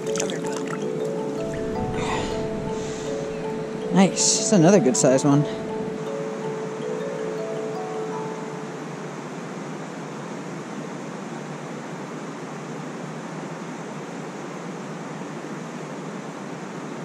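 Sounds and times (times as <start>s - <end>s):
steady rushing noise: 0.9s - 7.4s.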